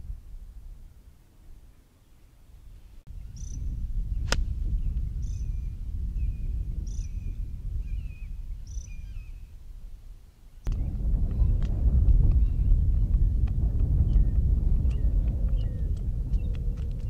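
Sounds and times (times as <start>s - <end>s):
low steady rumble: 2.5s - 17.0s
golf club striking ball: 4.2s - 4.6s.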